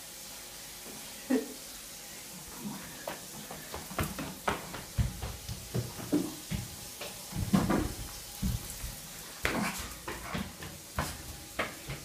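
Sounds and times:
footsteps on tiled floor: 0:02.4 - 0:12.0.

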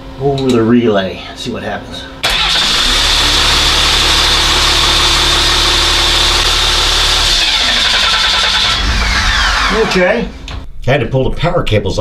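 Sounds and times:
starter motor whining: 0:02.2 - 0:10.2
engine running: 0:02.2 - 0:10.3.

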